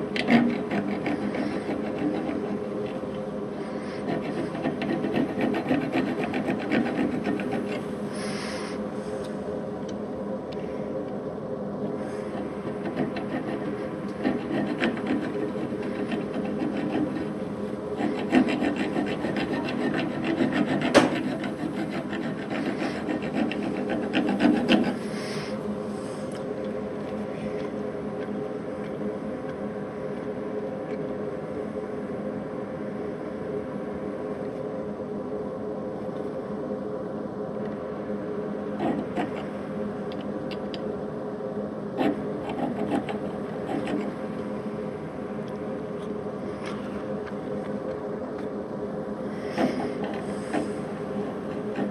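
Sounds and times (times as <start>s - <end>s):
lathe running hum: 0.0s - 51.9s
hand file rasping on metal: 0.2s - 7.9s, 12.3s - 17.4s, 18.0s - 25.1s, 38.8s - 39.4s, 42.0s - 44.2s.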